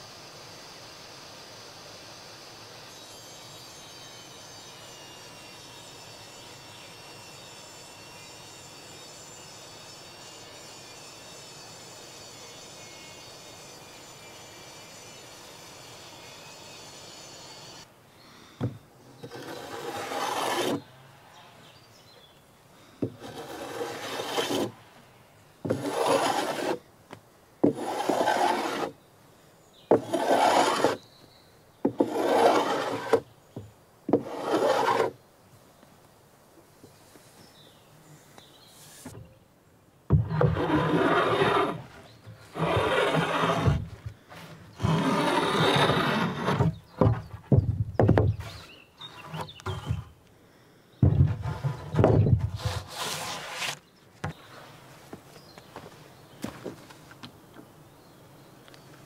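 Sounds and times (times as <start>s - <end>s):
faint outdoor hiss: 0.0s - 59.0s
hand plane shaving wood: 19.2s - 20.8s, 23.1s - 24.7s, 25.6s - 26.8s, 27.6s - 29.0s, 29.9s - 31.0s, 31.9s - 33.2s, 34.1s - 35.2s, 40.2s - 47.2s, 51.3s - 53.8s
knock: 47.0s - 48.4s.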